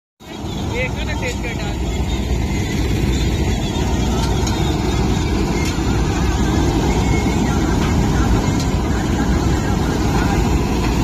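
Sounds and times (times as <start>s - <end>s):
combine harvester running: 0.2s - 11.0s.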